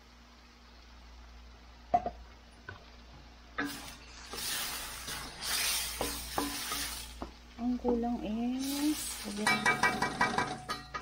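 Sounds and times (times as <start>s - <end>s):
vegetables sizzling in wok: 0.0s - 11.0s
wooden spatula scraping wok: 3.6s - 7.4s, 8.5s - 10.5s.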